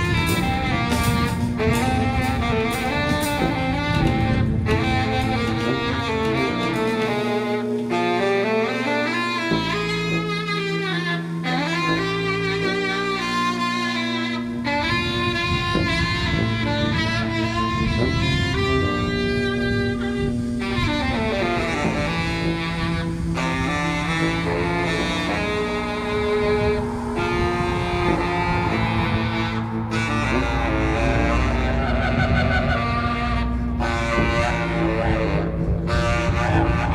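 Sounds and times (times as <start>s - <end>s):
saxophones playing held tones: 0.0s - 36.9s
steady low drone: 0.0s - 36.9s.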